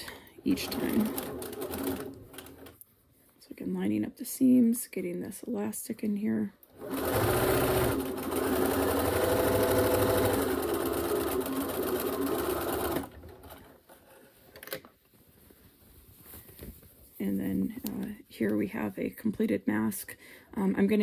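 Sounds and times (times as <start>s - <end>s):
sewing machine running: 0.5s - 2.7s, 6.8s - 13.7s
faint handling sounds: 13.4s - 19.5s.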